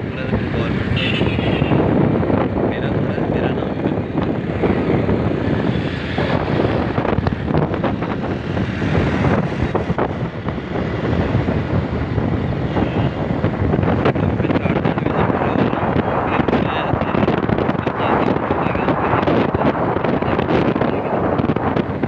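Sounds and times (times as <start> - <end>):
engine and road rumble: 0.0 - 22.0
wind buffeting microphone: 0.0 - 22.0.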